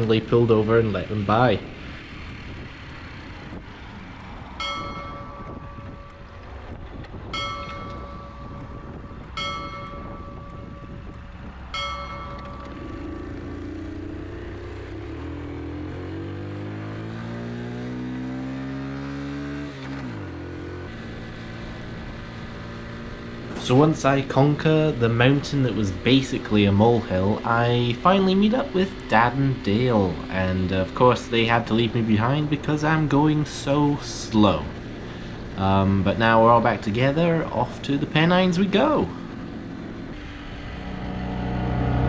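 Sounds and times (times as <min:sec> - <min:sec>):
motorcycle engine running: 0:00.0 - 0:42.0
bell ringing: 0:04.6 - 0:14.4.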